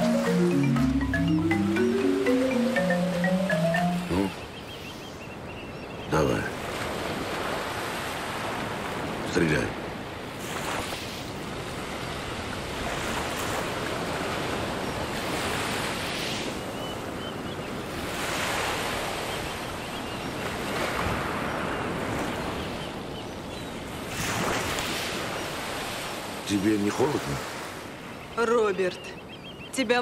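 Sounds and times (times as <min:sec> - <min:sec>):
wind: 0:00.0 - 0:30.0
sea surf breaking on beach: 0:06.5 - 0:16.7, 0:24.0 - 0:26.6.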